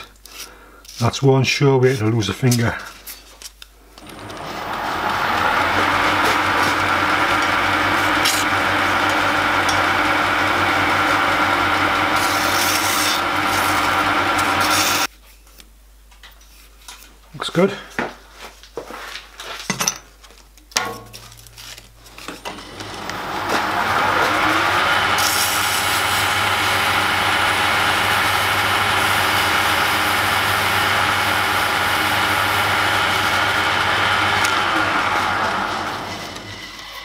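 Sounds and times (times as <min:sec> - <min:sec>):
metal lathe running: 0:04.0 - 0:15.1, 0:22.4 - 0:37.0.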